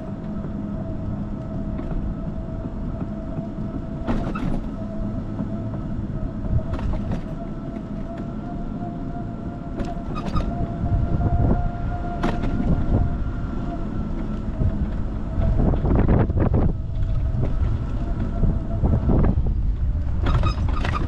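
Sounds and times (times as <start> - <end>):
road and tyre rumble: 0.0 - 21.0
knocks and rattles over bumps: 1.6 - 8.3, 14.1 - 21.0.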